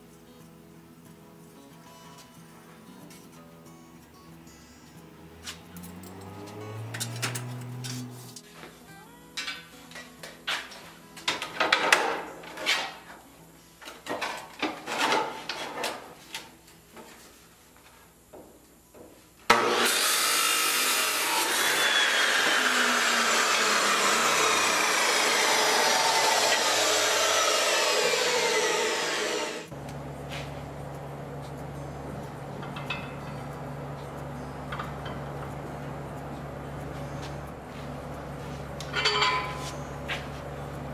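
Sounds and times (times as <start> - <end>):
chop saw grinding steel: 19.5 - 29.7, 38.9 - 39.9
steel tire clanking: 38.8 - 40.0.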